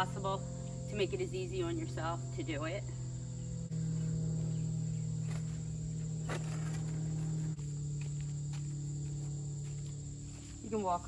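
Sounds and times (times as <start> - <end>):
insects trilling: 0.0 - 11.0
low steady hum: 0.0 - 11.0
shoes scuffing on stone: 6.2 - 11.0.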